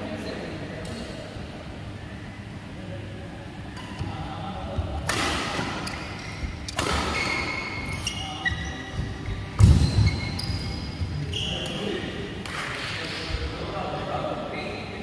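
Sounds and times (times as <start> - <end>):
shoes squeaking on court: 5.8 - 12.0.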